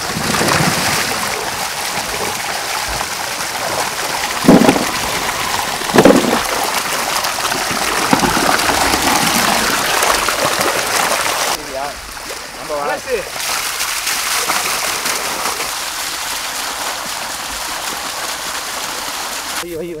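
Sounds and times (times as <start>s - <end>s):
water pouring into a metal pot: 0.0s - 11.9s
water splashing around vegetables: 0.0s - 19.6s.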